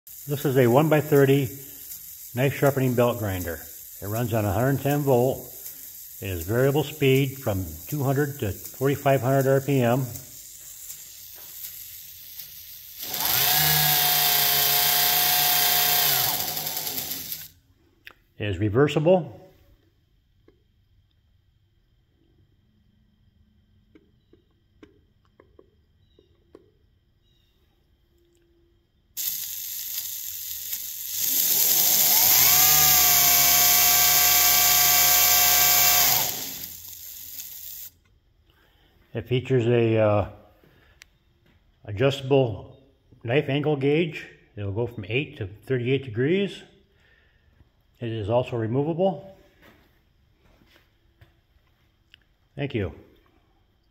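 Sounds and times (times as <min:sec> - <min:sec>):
belt grinder motor whining: 0:10.5 - 0:17.6, 0:29.2 - 0:37.9.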